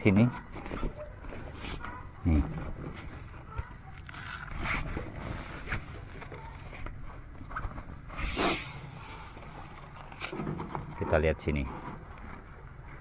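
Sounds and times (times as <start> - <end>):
tarp rustling: 3.9 - 10.6.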